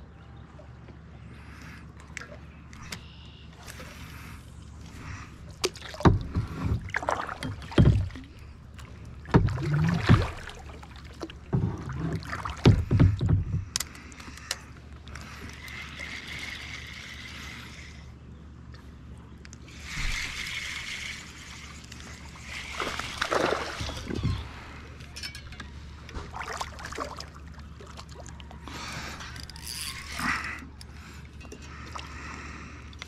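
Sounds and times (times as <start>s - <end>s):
boat low hum: 0.0s - 33.0s
loud knocks and thumps: 7.5s - 8.3s, 9.3s - 10.5s, 12.6s - 13.7s.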